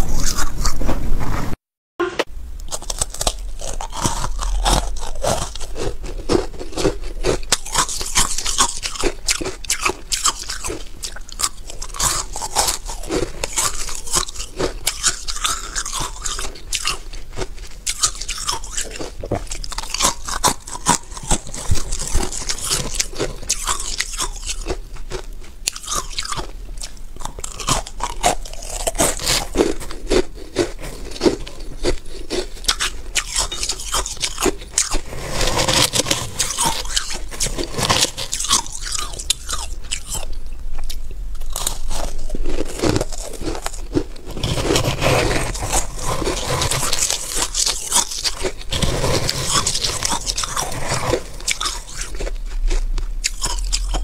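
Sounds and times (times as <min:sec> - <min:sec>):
steady low hum: 0:02.0 - 0:08.5, 0:34.6 - 0:47.6, 0:48.5 - 0:54.0
mouth crunching frost: 0:02.7 - 0:54.0.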